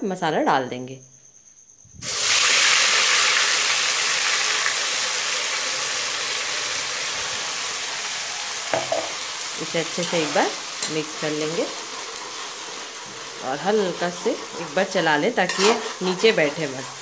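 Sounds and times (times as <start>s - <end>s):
paste sizzling in hot oil: 2.0s - 17.0s.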